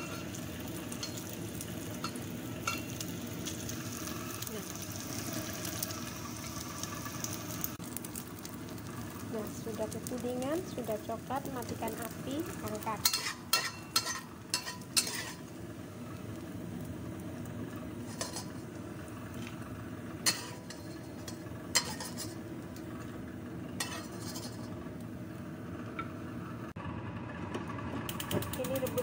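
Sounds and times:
metal ladle clinking against a wok: 0:13.0 - 0:15.4.

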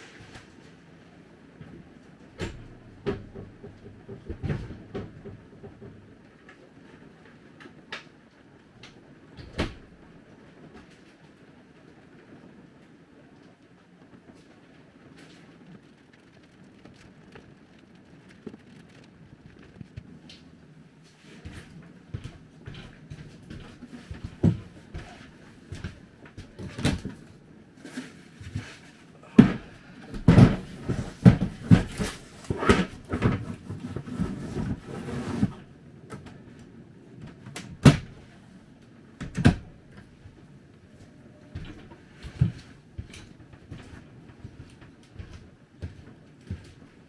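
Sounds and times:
faint knocks and shuffling: 0:00.0 - 0:47.0
low background rumble: 0:00.8 - 0:27.8.

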